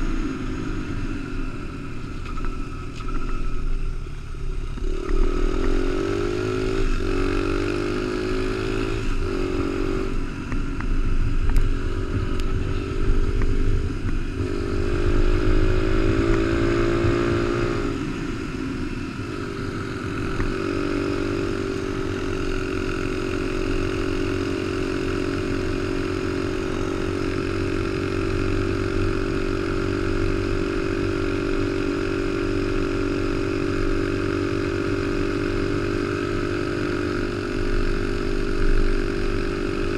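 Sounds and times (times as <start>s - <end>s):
wind and tyre rush: 0.0s - 36.8s
motorcycle engine: 0.0s - 39.9s.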